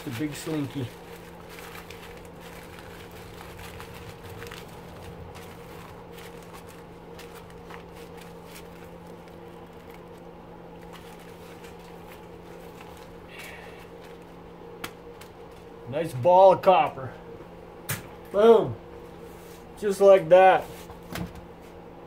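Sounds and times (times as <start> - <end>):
wire crinkling and rustling: 0.0 - 15.8
steady low hum: 0.0 - 22.0.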